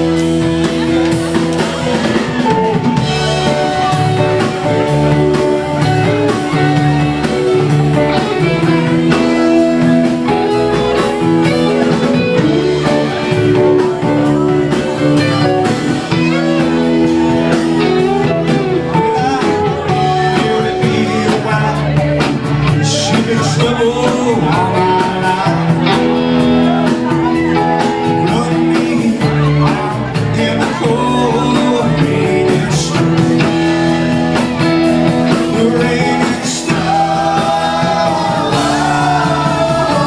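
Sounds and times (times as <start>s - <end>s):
live rock band playing: 0.0s - 40.0s.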